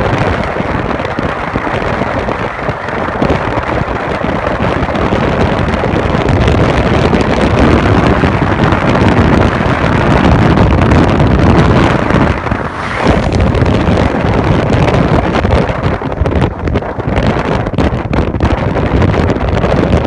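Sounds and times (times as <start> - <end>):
car road noise: 0.0 - 20.0
wind rumbling on microphone: 0.0 - 20.0.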